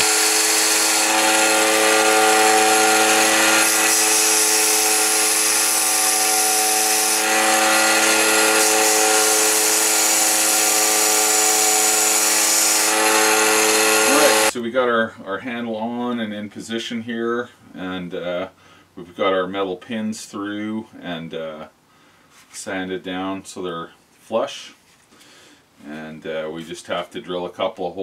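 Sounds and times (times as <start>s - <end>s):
belt sander grinding metal: 0.0s - 14.5s
motor hum: 0.0s - 14.5s.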